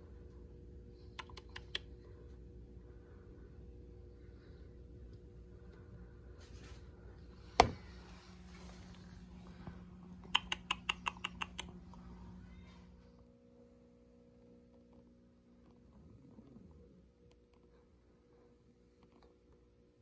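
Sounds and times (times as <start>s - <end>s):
faint steady hum: 0.0s - 20.0s
sharp clicks: 10.2s - 12.0s.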